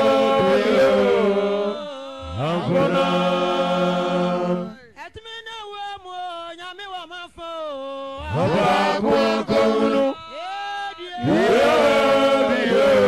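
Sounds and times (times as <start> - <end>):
several voices singing together: 0.0 - 4.8, 8.2 - 10.6, 11.2 - 13.0.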